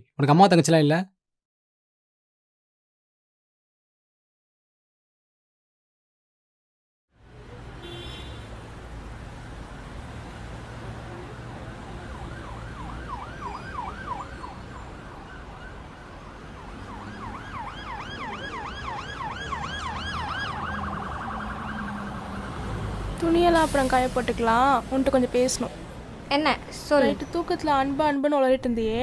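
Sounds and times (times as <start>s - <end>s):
emergency siren yelping: 11.1s - 23.7s.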